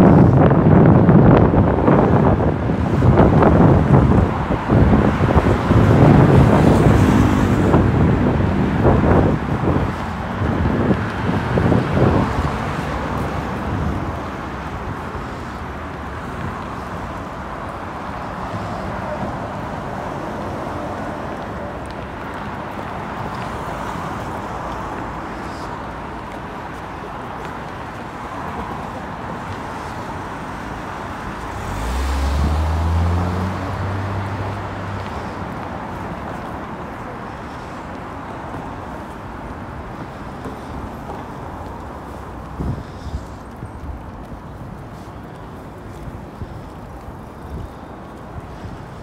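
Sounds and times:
city street traffic: 0:00.0 - 0:49.0
vehicle engine hum: 0:00.0 - 0:49.0.

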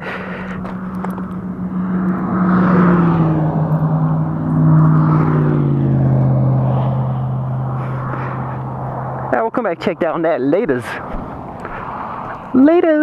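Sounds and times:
engine drone: 0:00.0 - 0:12.8.

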